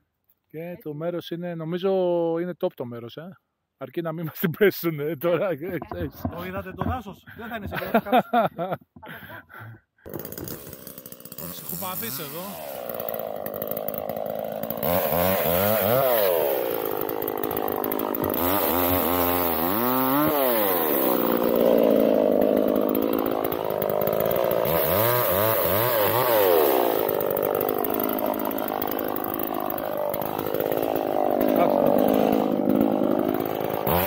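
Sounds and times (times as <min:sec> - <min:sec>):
chainsaw cutting branches: 0:07.7 - 0:08.7, 0:10.1 - 0:34.0.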